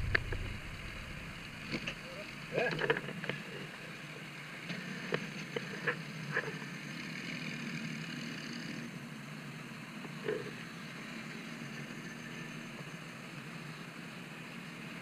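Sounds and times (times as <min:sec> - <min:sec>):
motorcycle engine running: 0:00.0 - 0:02.7
road and wind noise: 0:00.0 - 0:15.0.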